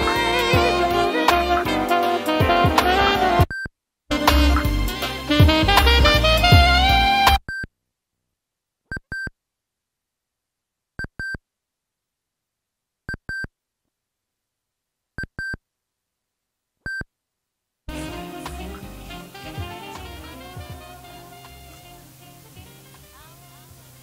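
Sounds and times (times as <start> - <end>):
music from tape: 0.0 - 3.4, 4.1 - 7.4, 17.9 - 24.0.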